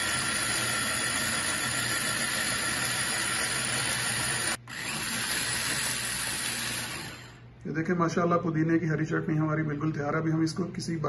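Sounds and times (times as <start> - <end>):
food chopper motor whining: 0.0 - 7.4.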